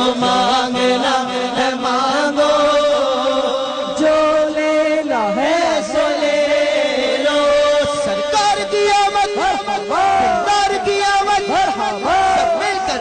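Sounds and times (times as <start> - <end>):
person chanting melody: 0.0 - 13.0.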